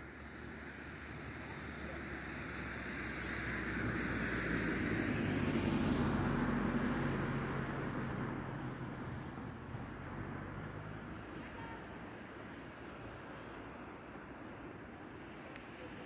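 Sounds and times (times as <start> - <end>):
aircraft passing overhead: 0.8 - 10.1.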